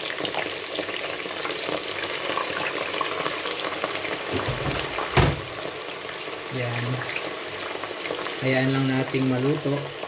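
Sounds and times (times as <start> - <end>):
fries sizzling in hot oil: 0.0 - 10.0
loud knock: 4.3 - 5.5.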